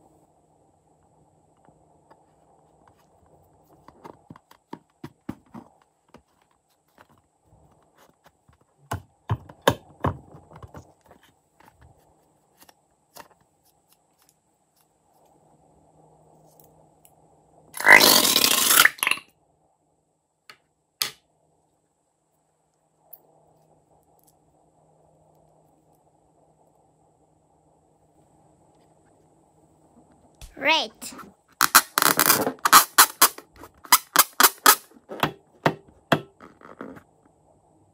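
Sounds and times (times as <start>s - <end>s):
hands squeezing rubber balloon: 17.8s - 19.2s, 31.6s - 34.8s.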